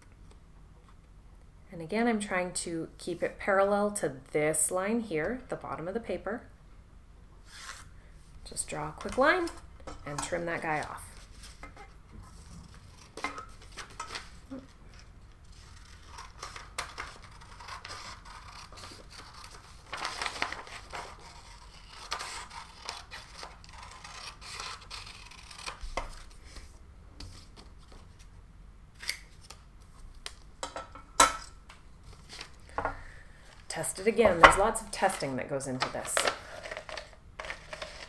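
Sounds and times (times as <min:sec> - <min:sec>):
paper rustling: 0:12.3 - 0:23.5
scissors snipping paper: 0:15.7 - 0:26.2.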